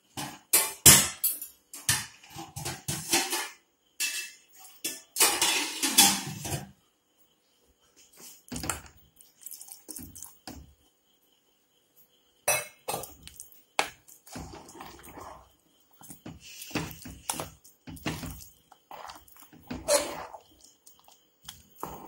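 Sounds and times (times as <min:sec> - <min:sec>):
water poured into pot: 0:08.7 - 0:10.5
spatula scraping metal pot: 0:13.8 - 0:22.0.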